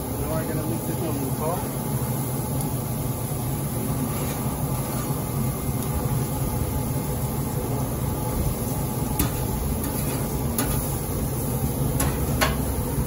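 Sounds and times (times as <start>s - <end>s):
pellet grill humming: 0.0s - 13.0s
metal tongs clicking on grill grates: 9.2s - 10.9s, 12.0s - 12.7s.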